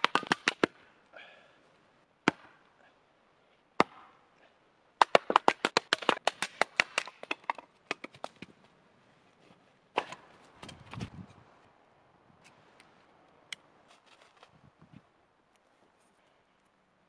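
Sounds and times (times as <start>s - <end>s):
hatchet striking firewood: 0.0s - 0.8s, 2.2s - 2.6s, 3.8s - 4.2s, 5.0s - 8.4s, 9.9s - 10.8s.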